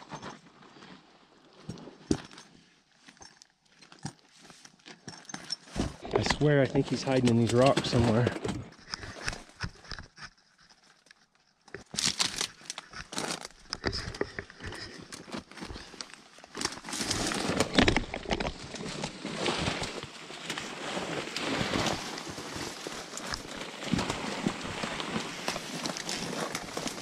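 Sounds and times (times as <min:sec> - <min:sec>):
dry branches crackling against clothing: 0:09.1 - 0:27.0.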